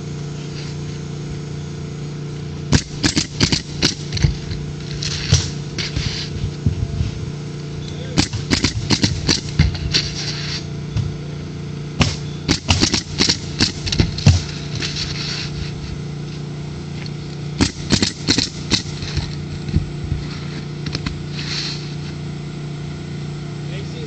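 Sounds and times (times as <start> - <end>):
steady low hum: 0.0 - 24.0
nailer firing into shingles: 2.7 - 6.4, 8.2 - 10.6, 12.0 - 15.8, 17.6 - 21.9.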